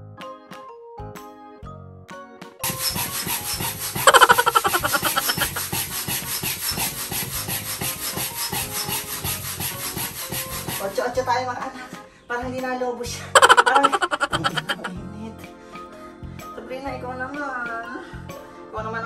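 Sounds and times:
pump squeaking: 2.6 - 10.9, 13.4 - 14.9
air pump rasping strokes: 2.6 - 11.1, 13.4 - 14.9.

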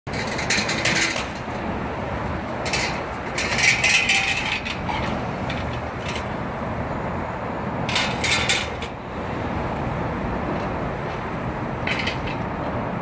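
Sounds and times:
metallic clattering and rattling: 0.1 - 1.6, 2.5 - 6.4, 7.8 - 9.0, 11.8 - 12.5
city street traffic: 0.1 - 13.0.

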